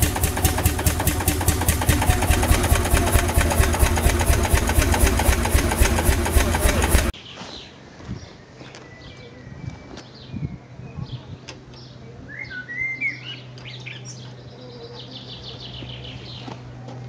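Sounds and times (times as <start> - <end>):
steady low hum: 0.0 - 7.2
songbirds chirping: 7.1 - 17.0.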